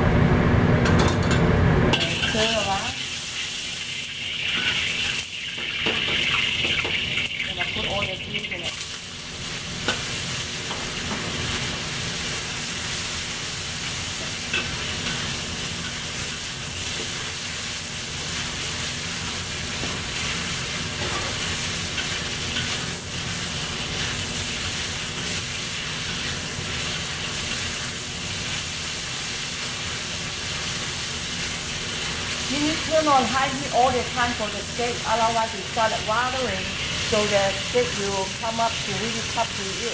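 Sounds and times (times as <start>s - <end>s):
metal spatula scraping wok: 1.9s - 8.2s, 19.2s - 28.0s
meat sizzling in a wok: 1.9s - 39.9s.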